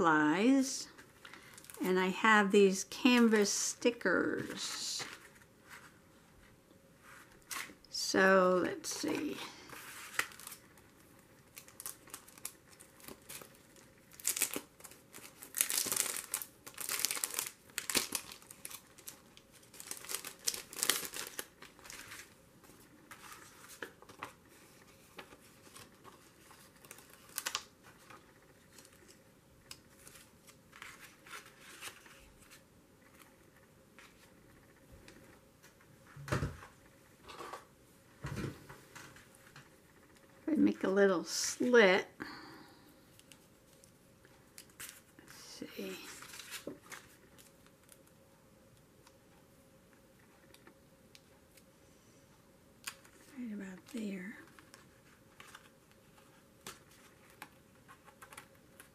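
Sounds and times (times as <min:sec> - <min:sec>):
paper and plastic crinkling: 0:00.8 - 0:01.9, 0:08.8 - 0:33.4, 0:43.2 - 0:48.2, 0:52.8 - 0:58.9.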